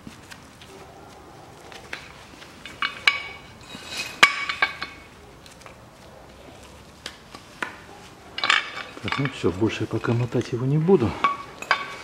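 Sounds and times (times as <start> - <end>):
winch cable metal clinks and rattles: 1.9 - 5.1, 8.4 - 12.0.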